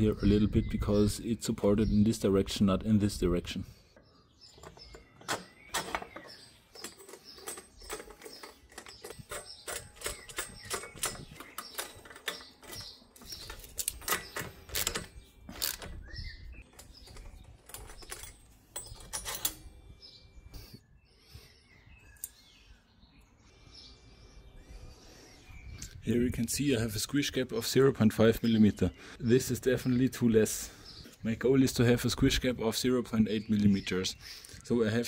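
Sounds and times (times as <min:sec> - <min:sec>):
metallic clicks of hand tools: 0:06.7 - 0:16.0.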